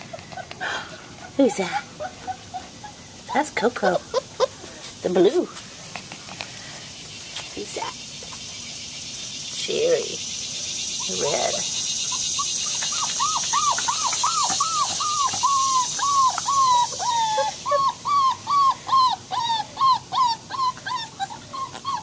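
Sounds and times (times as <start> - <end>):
puppy whimpering: 0.0 - 6.2, 11.0 - 22.0.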